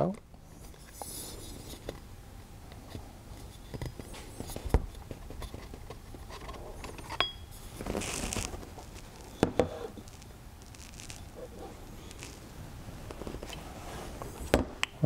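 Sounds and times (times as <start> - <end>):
scraping rustle: 3.4 - 14.5.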